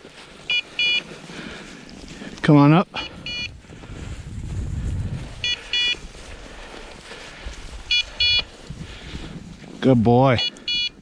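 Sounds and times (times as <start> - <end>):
low rustling and crunching: 0.0 - 10.4
high electronic double beeps: 3.2 - 3.5, 7.9 - 8.4.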